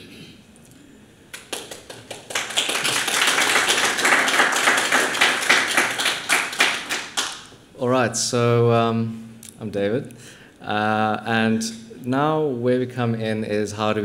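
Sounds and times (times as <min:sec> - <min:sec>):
audience applauding: 0:01.3 - 0:07.6.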